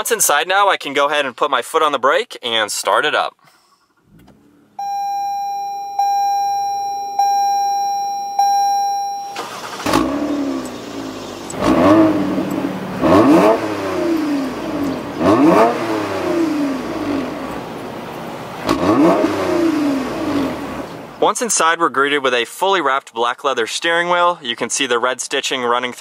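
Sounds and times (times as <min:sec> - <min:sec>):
cabin warning chime: 0:04.8 - 0:09.8
car engine revving: 0:09.4 - 0:21.2.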